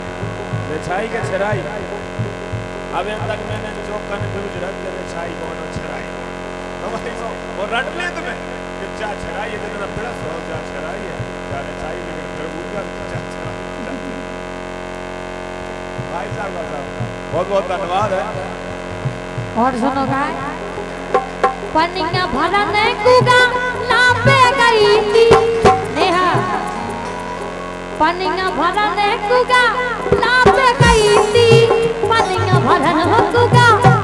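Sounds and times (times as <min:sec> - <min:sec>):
voice at microphone: 0:02.9 - 0:14.4.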